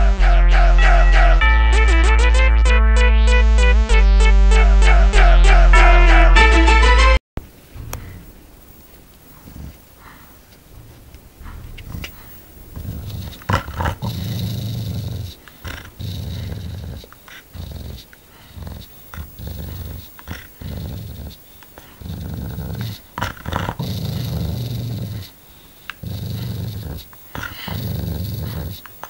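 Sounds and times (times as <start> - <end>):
dog growling and snarling: 9.3 - 29.0.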